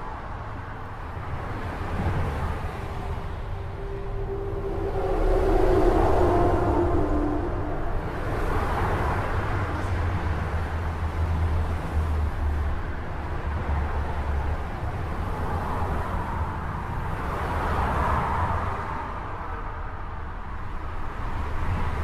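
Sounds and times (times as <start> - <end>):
low rumble: 2.4 - 10.0.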